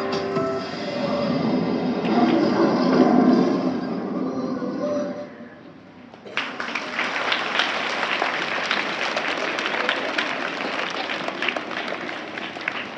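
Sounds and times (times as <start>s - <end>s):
children applauding: 6.2s - 12.9s.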